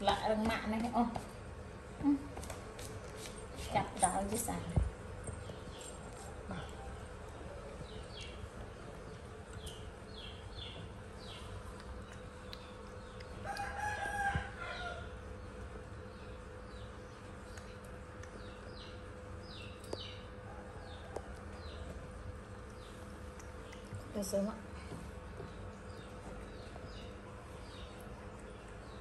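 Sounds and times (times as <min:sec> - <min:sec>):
steady low hum: 0:00.0 - 0:29.0
rooster crowing: 0:13.4 - 0:15.2.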